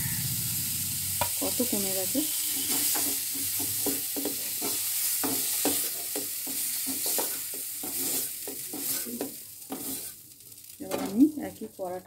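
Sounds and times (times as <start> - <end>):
oil sizzling in a pan: 0.0 - 12.0
metal spoon scraping a pan: 1.2 - 10.2.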